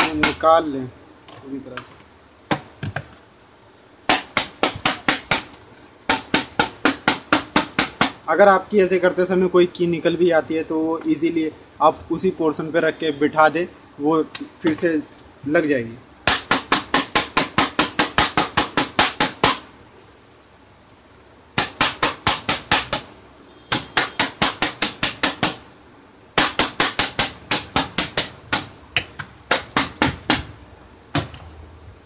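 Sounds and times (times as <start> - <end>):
rapid tapping on metal: 0.0 - 0.4, 4.1 - 8.3, 16.2 - 19.6, 21.6 - 23.1, 23.7 - 25.6, 26.4 - 30.5.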